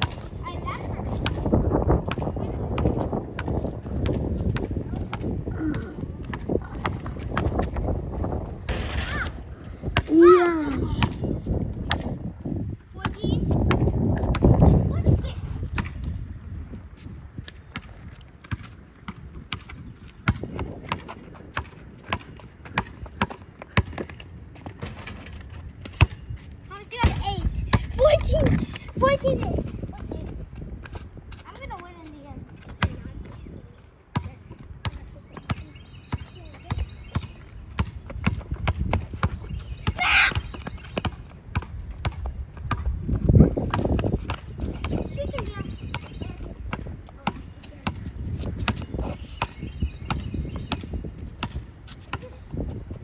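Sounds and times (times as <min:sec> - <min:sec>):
basketball dribbling: 0:17.6 - 0:25.1, 0:34.1 - 0:49.5.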